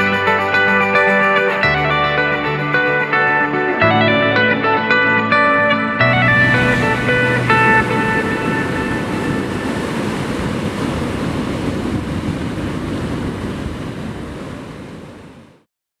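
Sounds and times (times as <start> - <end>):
guitar music: 0.0 - 10.2
sea waves: 0.0 - 15.7.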